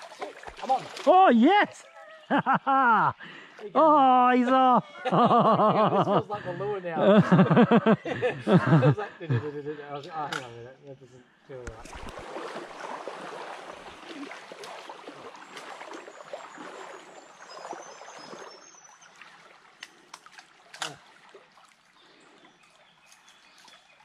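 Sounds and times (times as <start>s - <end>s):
stream burbling: 0.0s - 4.7s, 11.7s - 24.0s.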